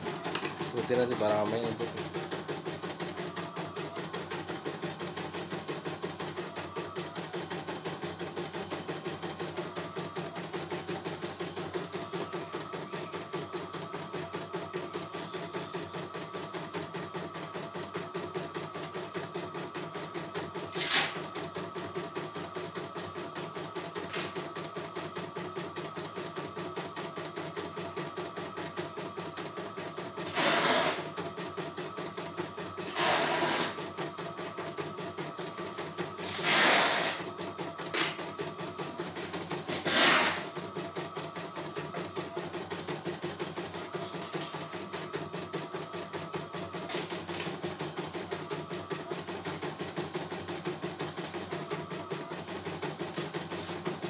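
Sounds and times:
embroidery machine stitching: 0.0s - 54.0s.

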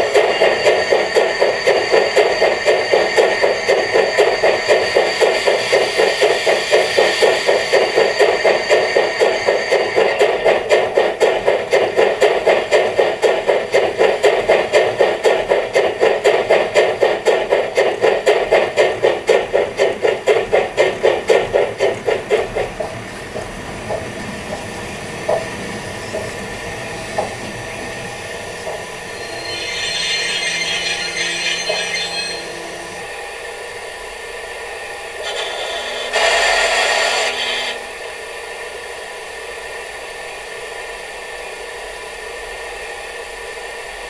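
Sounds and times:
steam hiss: 0.0s - 10.9s, 35.0s - 40.7s
model steam locomotive chuffs: 0.0s - 44.0s.

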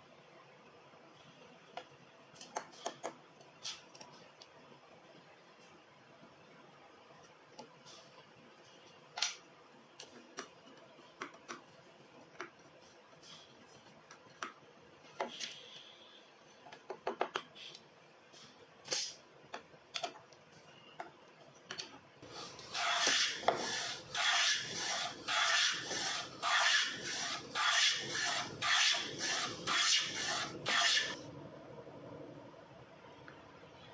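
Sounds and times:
plane shaving wood: 22.4s - 31.2s.

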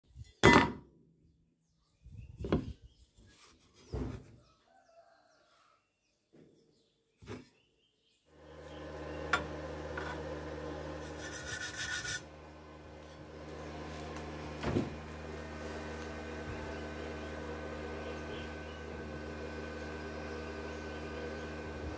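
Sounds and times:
electrical hum: 8.4s - 21.9s.

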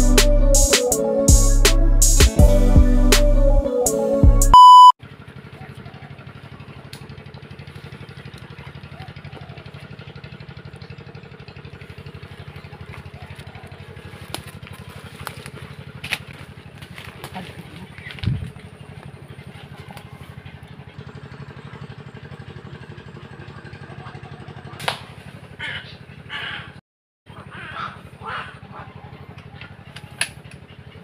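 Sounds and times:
low pulsing engine-like drone: 0.0s - 3.7s, 4.3s - 31.0s
electronic intro music: 0.0s - 4.9s
short high beep: 4.5s - 5.0s.

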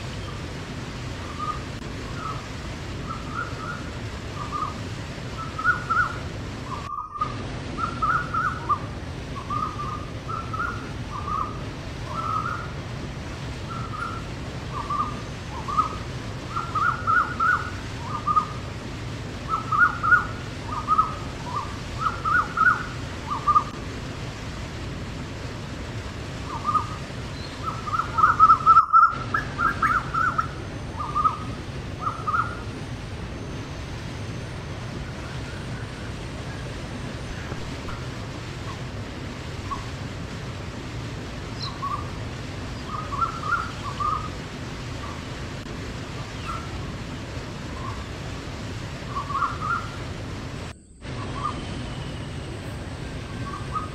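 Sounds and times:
waterfall rushing: 0.0s - 53.9s
bird chirping: 41.6s - 42.1s, 42.8s - 44.3s.

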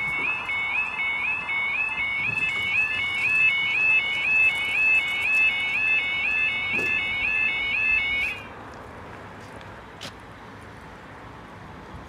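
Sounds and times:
level crossing alarm warble: 0.0s - 8.5s.

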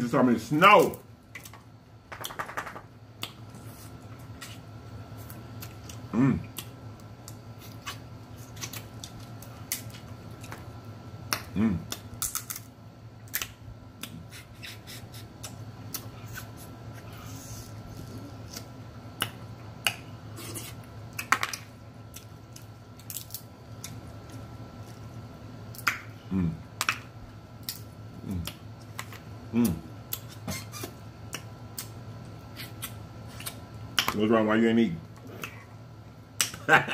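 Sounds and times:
chewing and lip-smacking: 5.2s - 10.7s, 13.3s - 21.3s, 22.1s - 26.1s, 27.6s - 34.2s, 35.2s - 35.7s
crab shells cracking: 11.2s - 14.1s, 21.1s - 24.4s.

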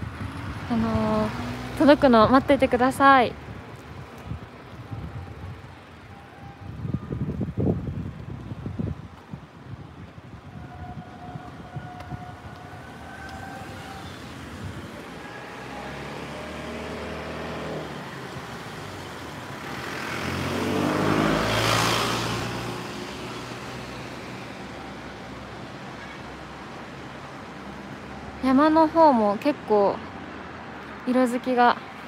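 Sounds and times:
car passing close: 0.0s - 2.7s, 12.5s - 25.8s
distant vehicle passing: 0.0s - 3.4s, 12.4s - 25.7s.

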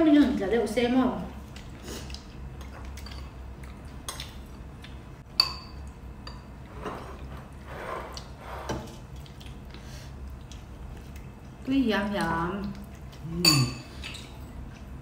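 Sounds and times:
spoon clinking against ceramic bowl: 5.4s - 6.4s.

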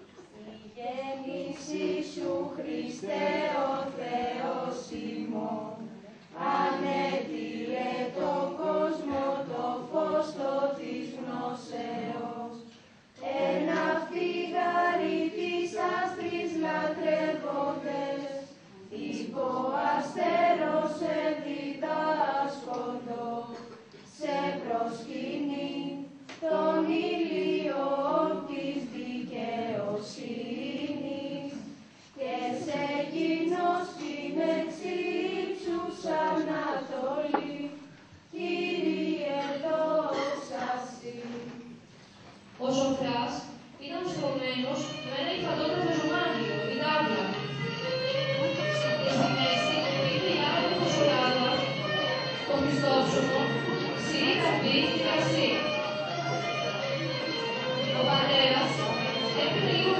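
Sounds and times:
group singing: 0.4s - 41.9s, 48.2s - 55.7s, 57.8s - 59.9s.

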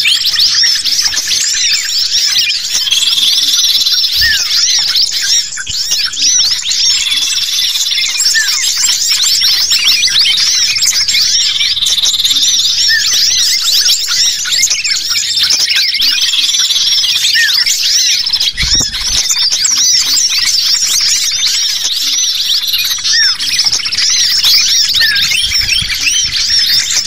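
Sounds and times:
songbirds chirping and whistling: 0.0s - 27.0s.

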